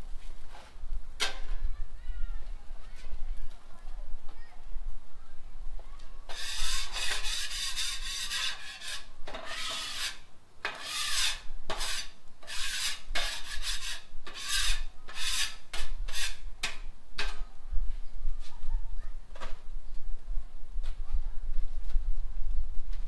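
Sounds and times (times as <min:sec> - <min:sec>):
scraper rasping on steel griddle: 0:06.3 - 0:16.5.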